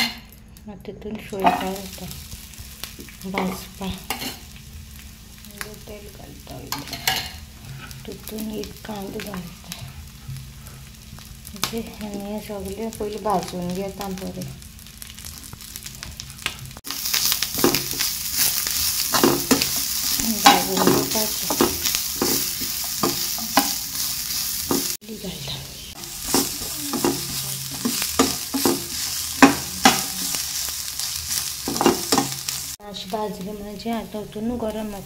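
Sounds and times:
food sizzling in a pan: 1.4 - 35.0
spatula scraping a pan: 3.4 - 4.5, 6.7 - 8.3, 16.9 - 32.7.

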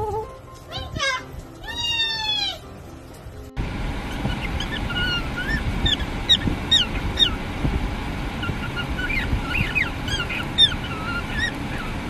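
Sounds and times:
low steady rumble: 3.5 - 12.0
cockatiel chirping: 4.1 - 7.4, 8.4 - 12.0.

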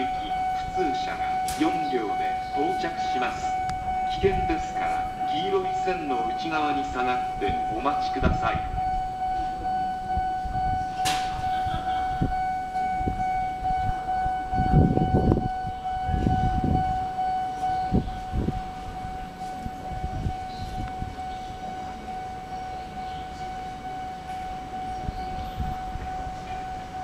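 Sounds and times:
electronic warning tone: 0.0 - 27.0
low rumbling thumps: 3.2 - 22.0.

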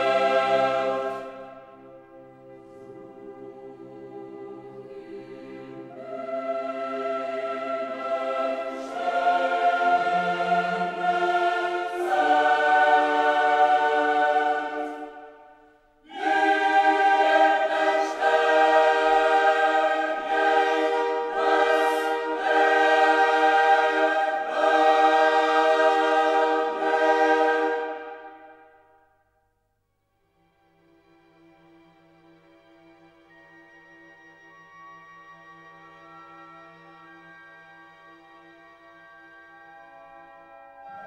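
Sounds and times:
choir singing held chords: 0.0 - 29.2.

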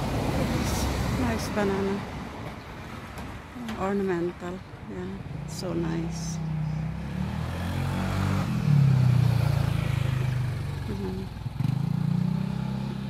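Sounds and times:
vehicle engine running: 8.5 - 13.0.

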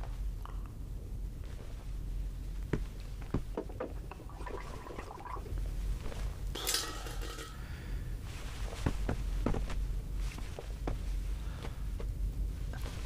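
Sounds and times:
knocks and handling at a basin: 2.8 - 5.4, 6.6 - 7.6.

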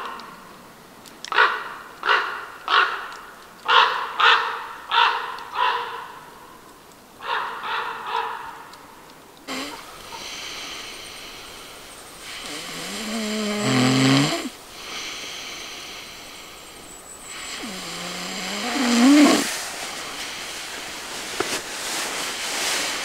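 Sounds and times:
person snoring: 9.5 - 19.6.

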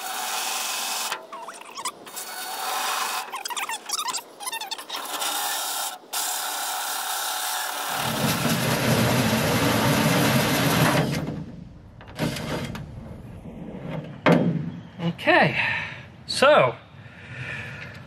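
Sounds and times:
power drill cutting acrylic: 0.0 - 3.4, 4.8 - 10.9.

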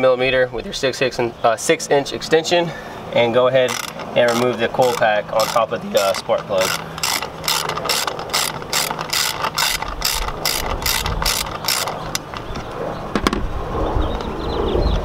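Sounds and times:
socket ratchet clicking: 3.6 - 12.7.

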